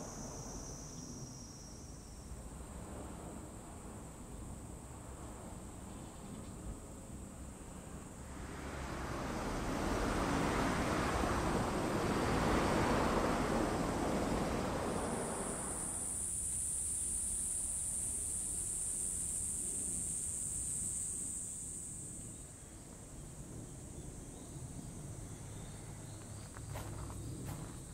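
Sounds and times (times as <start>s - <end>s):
insects droning: 0.0s - 27.9s
vehicle passing: 8.2s - 16.1s.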